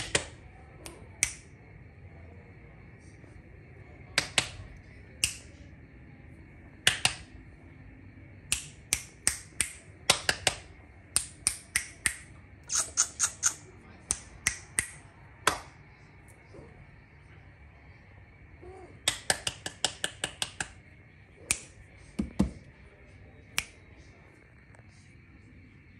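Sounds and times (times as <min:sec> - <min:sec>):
finger snapping: 0:00.0 - 0:01.5, 0:04.2 - 0:04.6, 0:05.2 - 0:05.5, 0:06.8 - 0:07.3, 0:08.5 - 0:15.8, 0:19.0 - 0:20.8, 0:21.5 - 0:22.5, 0:23.5 - 0:23.8.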